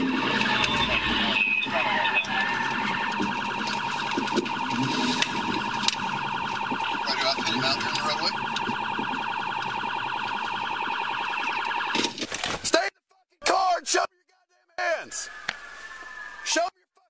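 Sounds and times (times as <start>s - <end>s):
police siren pulsing: 0.0s - 12.2s.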